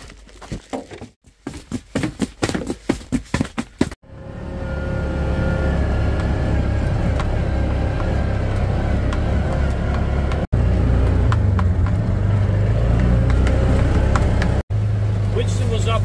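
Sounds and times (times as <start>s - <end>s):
vehicle engine running: 4.0s - 16.0s.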